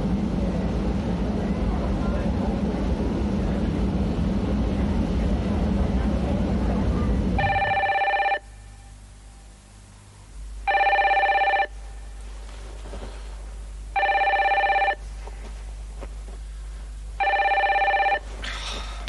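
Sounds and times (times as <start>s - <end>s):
steady rumble: 0.0s - 19.0s
telephone ringing: 7.4s - 8.5s, 10.7s - 11.8s, 13.9s - 15.0s, 17.2s - 18.3s.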